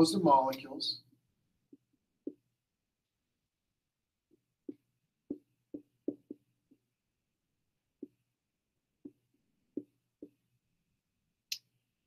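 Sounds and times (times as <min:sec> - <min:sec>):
marker tapping on whiteboard: 0:01.7 - 0:02.5, 0:04.3 - 0:07.0, 0:08.0 - 0:08.3, 0:09.0 - 0:10.5.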